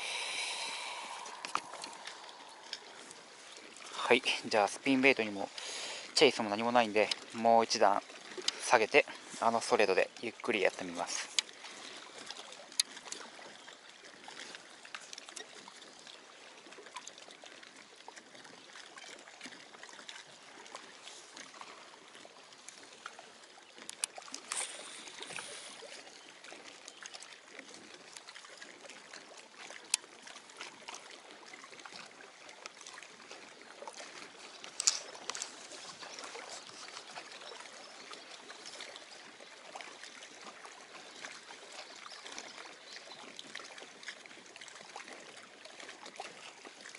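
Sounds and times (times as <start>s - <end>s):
waves lapping against shoreline: 0.0s - 46.9s.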